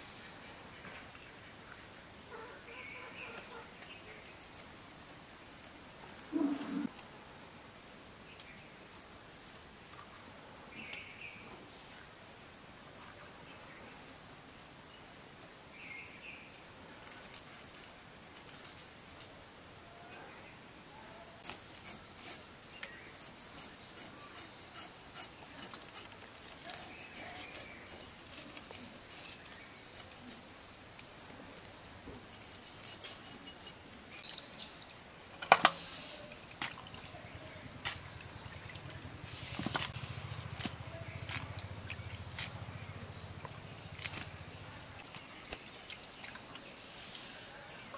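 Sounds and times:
bird chirps: 0:33.5 - 0:34.8.

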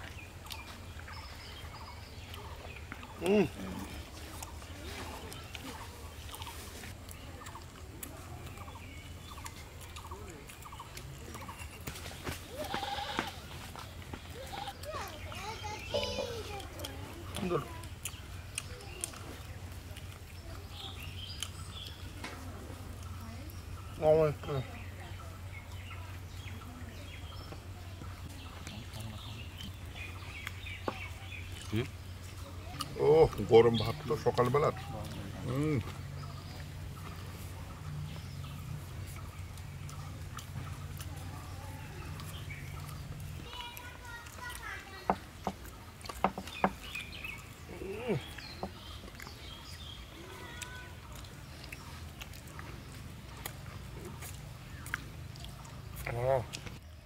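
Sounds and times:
people chewing food: 0:00.0 - 0:57.0
small wet clicks: 0:14.6 - 0:23.2, 0:38.4 - 0:57.0
person chewing and lip-smacking: 0:16.5 - 0:22.0, 0:42.1 - 0:57.0.

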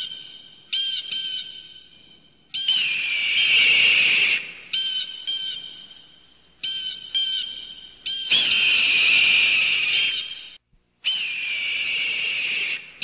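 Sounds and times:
high whistle-like tones: 0:08.1 - 0:13.0.

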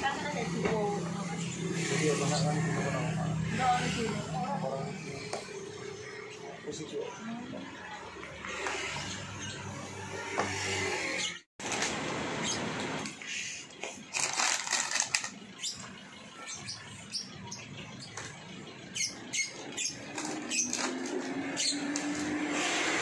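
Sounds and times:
plastic wrappers crinkling: 0:14.0 - 0:15.4.

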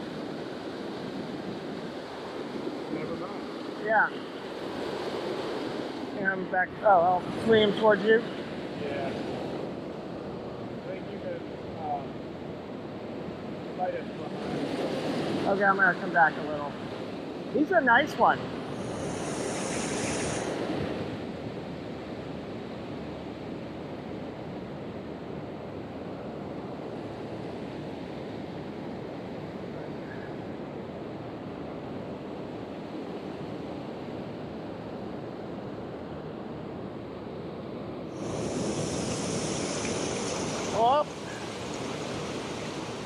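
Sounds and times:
stream rushing over rocks: 0:38.2 - 0:43.0.

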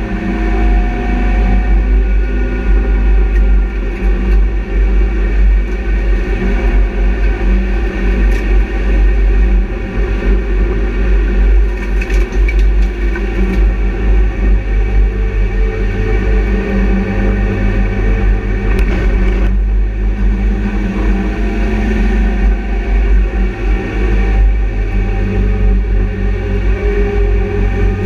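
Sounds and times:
race car engine drone: 0:00.0 - 0:28.0.

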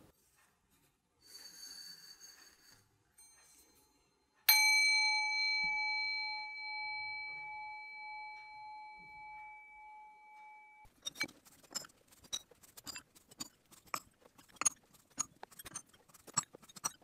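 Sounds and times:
bowl bell ringing: 0:04.5 - 0:10.9
brass bowl scraping on rod: 0:11.0 - 0:17.0.

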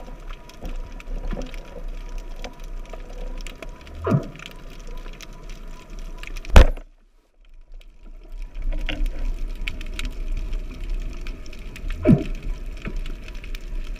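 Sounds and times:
underwater crackle and hiss: 0:00.0 - 0:13.9.

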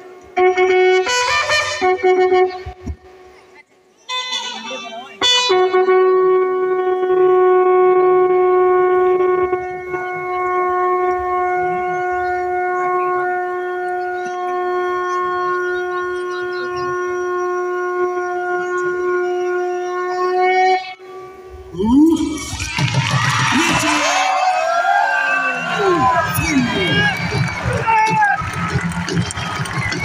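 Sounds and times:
person shouting drawn-out command: 0:21.7 - 0:22.6, 0:23.5 - 0:24.5, 0:25.7 - 0:27.2.

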